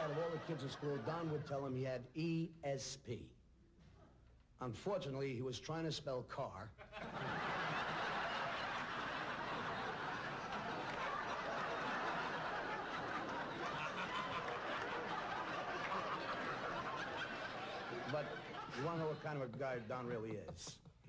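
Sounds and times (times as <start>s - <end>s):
large audience laughing: 0.0s - 1.6s, 6.8s - 20.3s.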